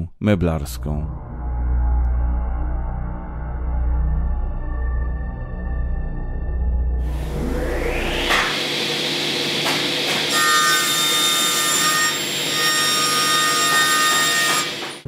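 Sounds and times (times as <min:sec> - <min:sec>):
panel saw cutting wood: 0:07.0 - 0:15.0.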